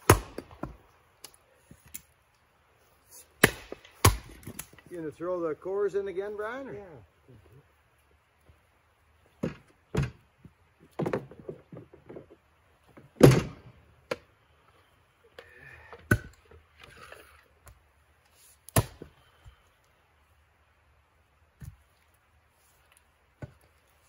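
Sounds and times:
axes splitting wood: 0.0 - 2.1, 3.1 - 4.9, 9.3 - 14.3, 15.4 - 17.8, 18.6 - 19.6
firewood thrown into plastic cart: 9.3 - 14.3.

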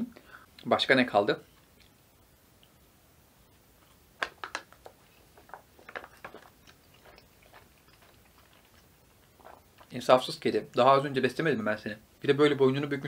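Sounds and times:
person chewing crunchy food: 4.7 - 10.0.

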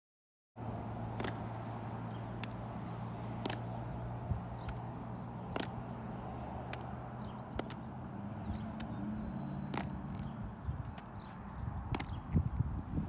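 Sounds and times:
ball thumping into leather glove: 1.2 - 1.4, 3.4 - 3.8, 5.5 - 5.9, 6.7 - 6.9, 7.5 - 7.8, 9.7 - 10.0, 11.9 - 12.2.

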